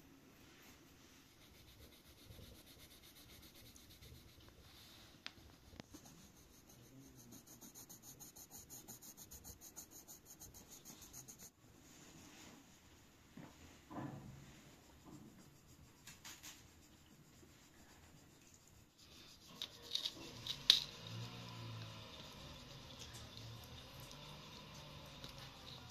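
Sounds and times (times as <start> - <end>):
pencil scratching on paper: 0.6 - 5.0, 5.7 - 11.6, 14.5 - 21.2.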